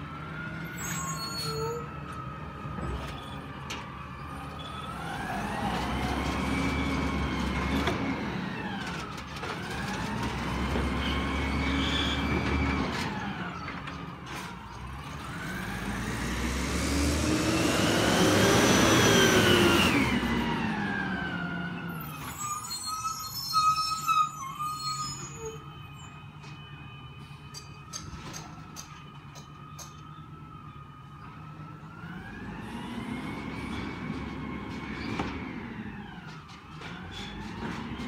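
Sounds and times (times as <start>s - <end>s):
garbage truck engine revving: 15.2s - 21.4s.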